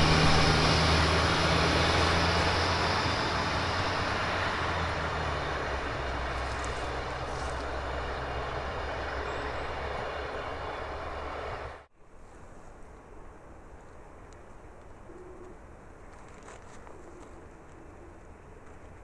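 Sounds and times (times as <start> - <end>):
wheels on rails: 0.0 - 11.8
diesel engine drone: 0.0 - 11.9.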